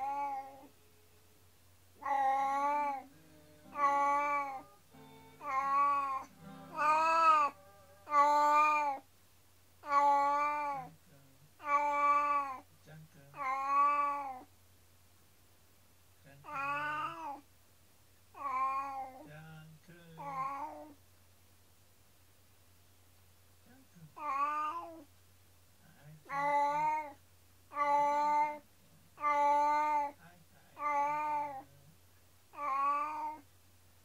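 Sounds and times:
cat meowing plaintively: 0.0s - 0.7s, 2.0s - 4.8s, 5.4s - 9.0s, 9.8s - 10.9s, 11.6s - 12.6s, 13.3s - 14.5s, 16.4s - 17.4s, 18.4s - 19.3s, 20.2s - 21.0s, 24.2s - 25.1s, 26.3s - 28.6s, 29.2s - 30.2s, 30.8s - 31.7s, 32.5s - 33.4s.

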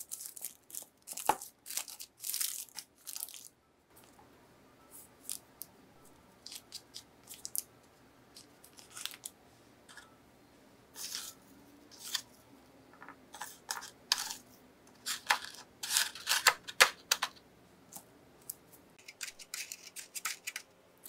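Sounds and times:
parchment paper crinkling: 8.4s - 9.3s.

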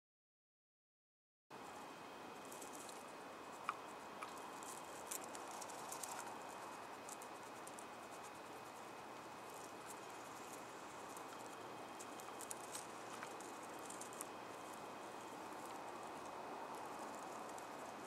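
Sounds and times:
steady hiss: 1.6s - 18.0s.

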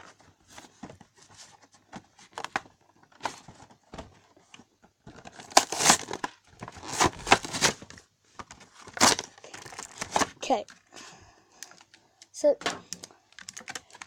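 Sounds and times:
plastic packaging tearing and crinkling: 5.1s - 8.0s, 8.8s - 10.5s.

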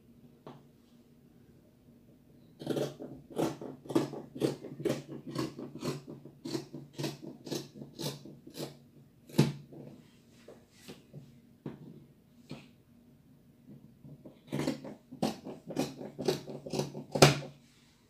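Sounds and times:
scissors snipping fabric: 2.6s - 9.6s, 14.3s - 17.5s.

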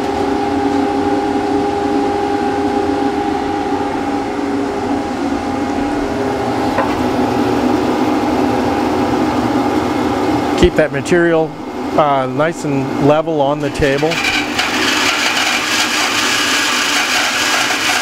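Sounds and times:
bandsaw motor hum: 13.6s - 18.0s.

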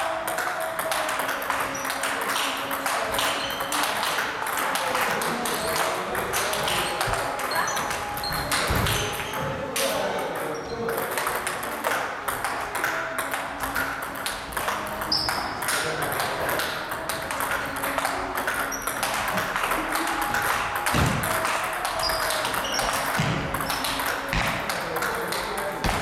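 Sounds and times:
table tennis ball knocking: 12.3s - 25.2s.

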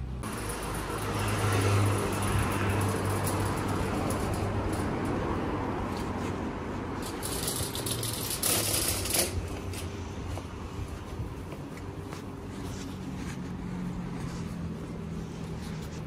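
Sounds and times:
traffic noise with low hum: 0.0s - 16.0s
vehicle passing close by: 0.2s - 8.5s.

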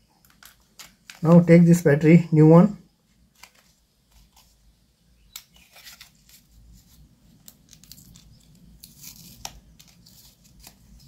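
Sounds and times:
plastic blister pack crinkling: 0.2s - 1.4s, 3.2s - 4.6s, 5.3s - 11.0s
card tearing: 5.4s - 11.0s.

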